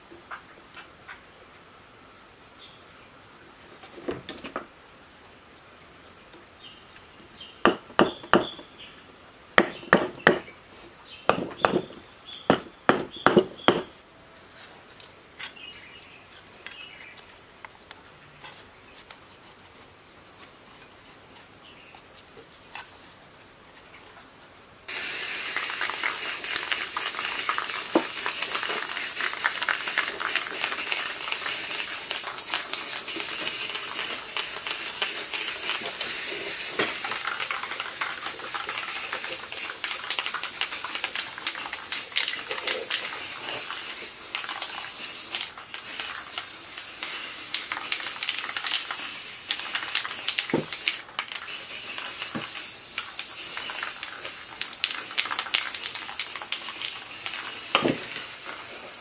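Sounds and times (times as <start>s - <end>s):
spray paint can hissing: 24.9s - 59.0s.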